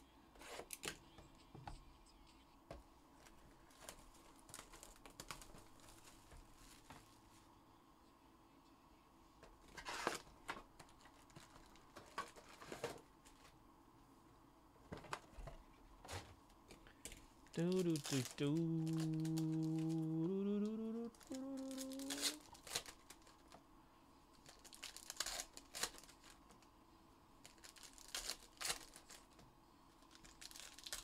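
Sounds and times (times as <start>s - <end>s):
plastic wrap crinkling and tearing: 3.7s - 6.9s, 9.8s - 13.0s, 17.6s - 23.6s, 24.4s - 26.5s, 27.4s - 29.3s, 30.0s - 31.0s.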